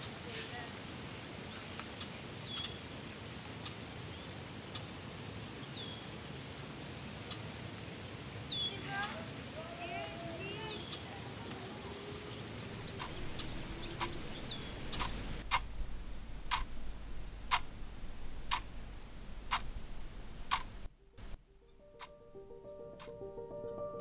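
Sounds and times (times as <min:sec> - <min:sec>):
wall clock ticking: 0:14.9 - 0:15.7, 0:16.5 - 0:16.7, 0:17.5 - 0:17.7, 0:18.5 - 0:18.7, 0:20.5 - 0:20.7.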